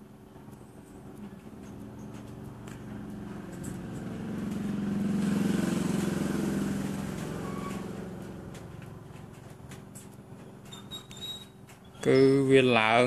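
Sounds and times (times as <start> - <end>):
vehicle engine passing by: 1.2 - 10.7.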